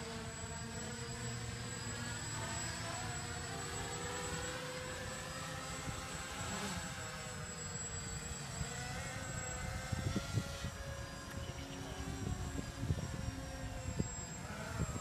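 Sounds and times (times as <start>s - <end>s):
model aircraft propellers droning: 0.0s - 15.0s.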